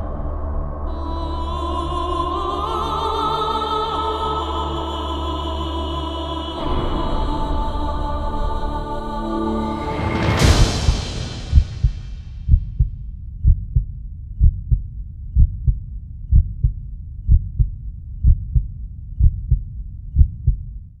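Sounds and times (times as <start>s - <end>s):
deep boom: 10.4s - 20.8s
heartbeat thumps: 10.4s - 20.8s.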